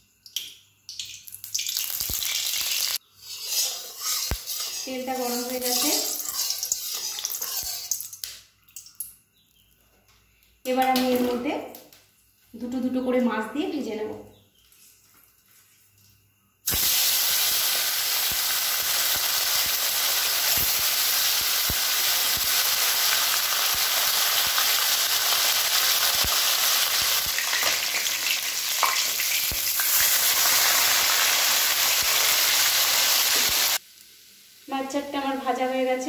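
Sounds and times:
fish sizzling in hot oil: 1.0 - 8.3, 16.7 - 35.0.

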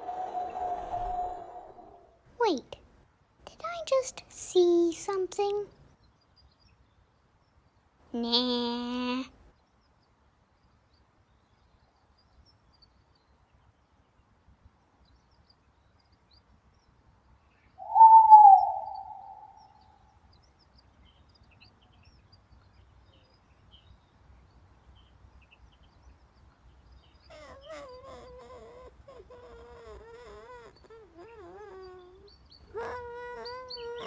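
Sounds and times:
owl screeching: 0.0 - 2.1, 17.8 - 19.8
owlet wavering call: 17.8 - 19.8.

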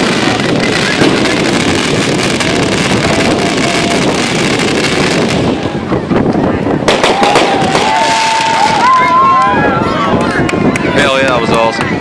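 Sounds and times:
firework fountain hissing and crackling: 0.0 - 9.4.

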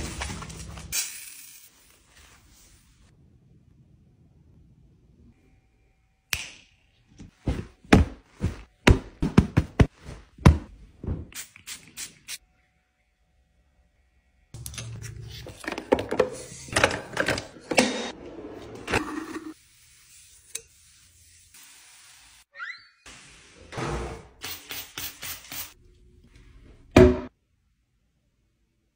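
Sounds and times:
wiping and scrubbing: 19.5 - 22.4.

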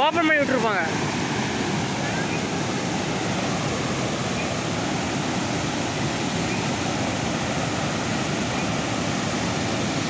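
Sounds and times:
torrent of water rushing: 0.0 - 10.0.

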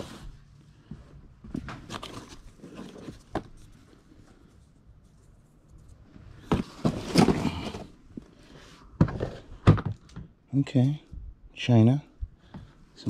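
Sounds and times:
cardboard pieces rustling and scraping: 1.6 - 8.0.

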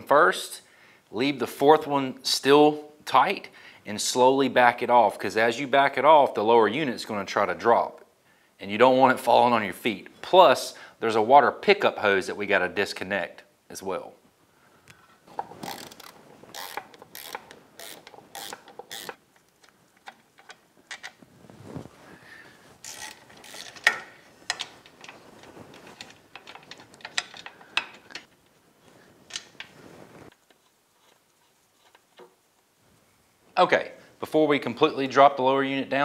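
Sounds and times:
socket ratchet clicking: 15.6 - 19.2, 22.8 - 24.0.

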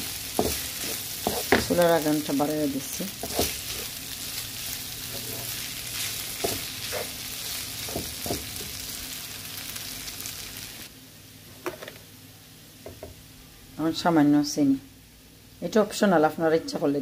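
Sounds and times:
rice sizzling in a pan: 0.0 - 10.9
wooden spatula scraping pan: 0.3 - 1.9, 3.1 - 4.0, 5.1 - 7.2.

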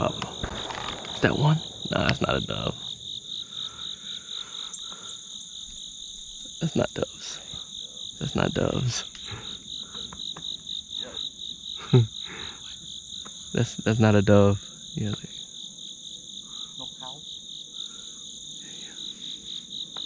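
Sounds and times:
high insect buzz: 0.0 - 13.9
insects trilling: 0.0 - 20.0.

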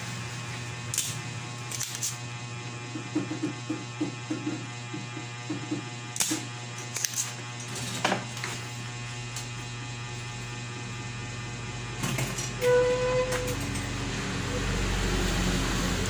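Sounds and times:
steady electrical hum: 0.0 - 16.0
desoldering pump snap: 0.9 - 2.2, 6.1 - 7.4.

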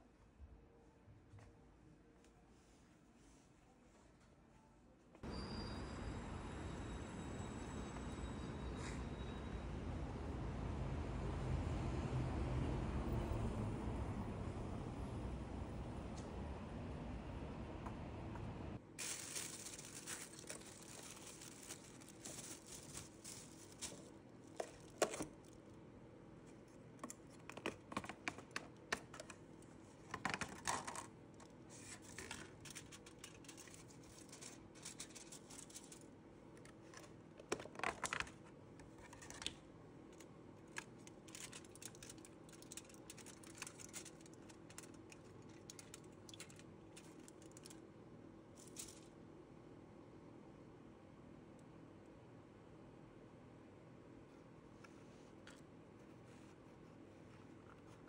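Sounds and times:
foil and plastic containers crinkling: 19.0 - 25.6, 31.7 - 36.1, 36.7 - 39.5, 40.6 - 47.8.

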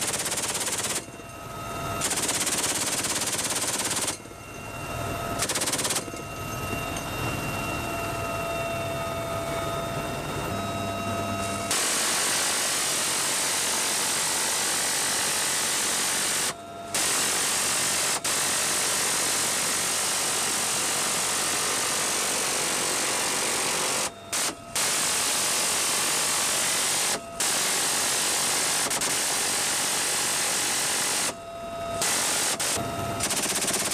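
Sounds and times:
machine gun firing bursts: 0.0 - 1.1, 2.0 - 4.2, 5.4 - 6.1, 11.7 - 31.3, 32.0 - 33.9.

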